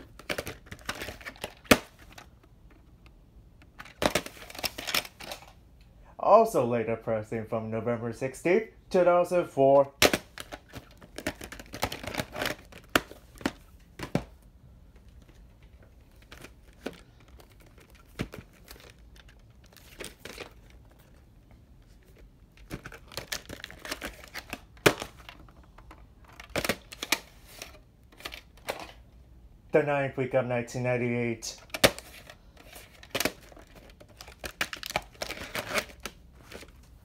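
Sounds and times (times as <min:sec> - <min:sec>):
plastic cases clicking and tapping: 0:00.0 - 0:05.5, 0:10.0 - 0:21.2, 0:22.0 - 0:29.0, 0:31.6 - 0:36.7.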